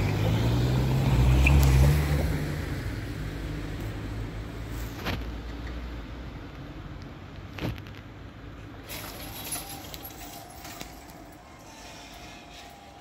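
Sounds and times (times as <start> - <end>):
cars rumbling over crossing: 0.0 - 13.0
light high rattling: 8.8 - 12.2.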